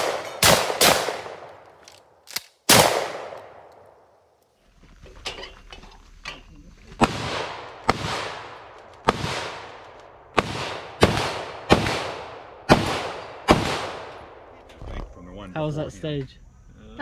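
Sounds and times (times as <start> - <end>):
rifle shots echoing: 0.0 - 3.9, 7.0 - 14.5.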